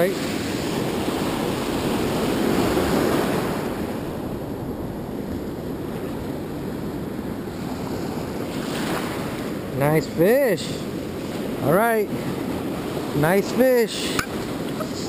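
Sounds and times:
ocean surf washing up beach: 0.0s - 15.0s
wind buffeting microphone: 0.3s - 9.8s.

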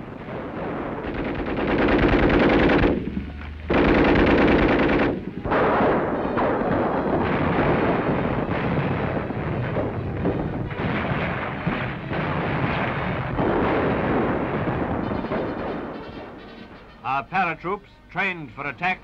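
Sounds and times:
rapid machine-gun fire: 0.2s - 16.1s.

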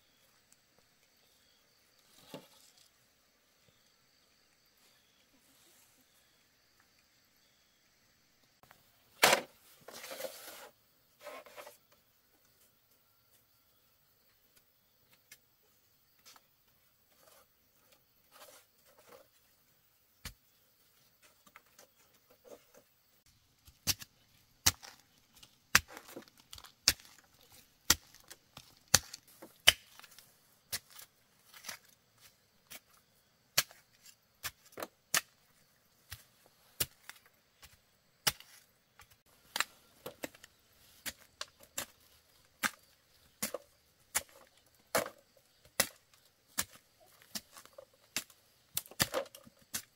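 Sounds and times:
blade chopping wood: 9.2s - 9.5s, 23.6s - 31.9s, 36.8s - 49.9s.

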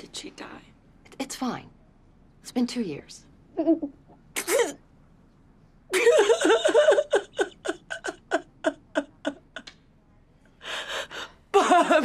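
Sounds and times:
woman crying and sobbing: 5.9s - 9.7s, 10.6s - 12.0s.

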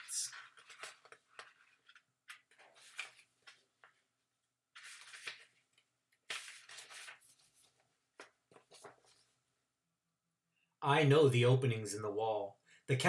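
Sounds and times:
book pages rustling: 0.0s - 9.4s.

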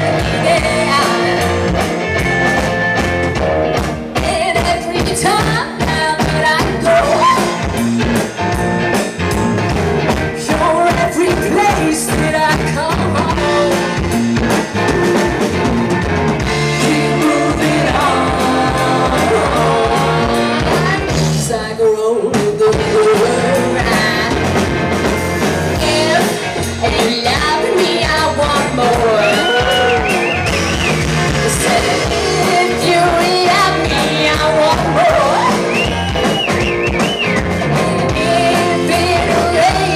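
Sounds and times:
woman singing lead: 0.0s - 1.8s, 4.1s - 7.7s, 10.4s - 14.0s, 16.7s - 24.6s, 25.7s - 30.2s, 31.2s - 36.0s, 37.6s - 39.9s
bass guitar: 0.0s - 39.9s
drum kit: 0.0s - 39.9s
electric guitar: 0.0s - 39.9s.

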